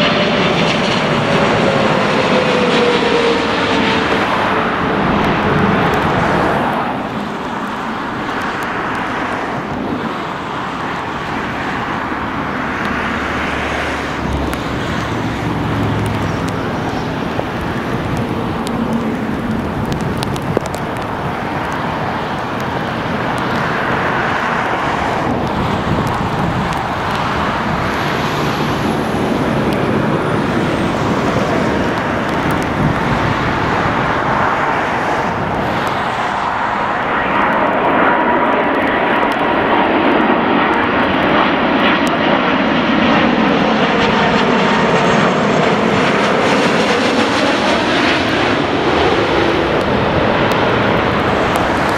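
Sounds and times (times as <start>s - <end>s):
jet plane passing overhead: 0.0s - 51.9s
thin jet engine whine: 0.0s - 51.9s.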